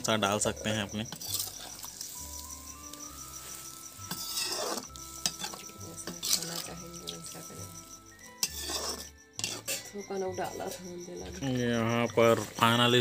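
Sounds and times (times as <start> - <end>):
metal clinking on a pan: 0.2 - 12.8
gravy simmering and sizzling: 1.0 - 9.8
metal ladle scraping a pan: 1.1 - 2.5, 3.3 - 7.2, 8.2 - 9.9.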